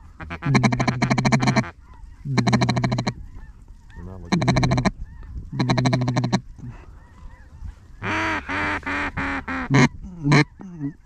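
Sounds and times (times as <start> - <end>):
duck call quacks: 0.2 - 1.7, 2.3 - 3.2, 4.3 - 4.9, 5.5 - 6.4, 8.0 - 10.9.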